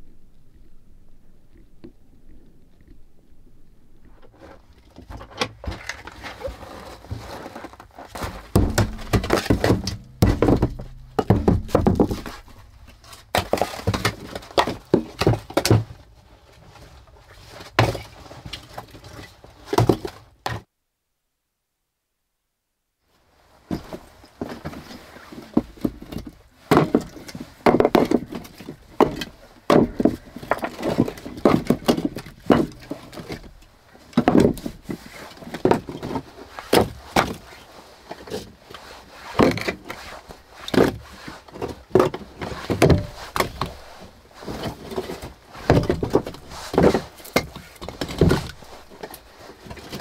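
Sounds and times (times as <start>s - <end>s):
firewood logs knocking when stacked: 8.1s - 16.0s, 25.6s - 33.6s, 34.2s - 37.4s, 41.6s - 43.8s, 45.6s - 50.0s.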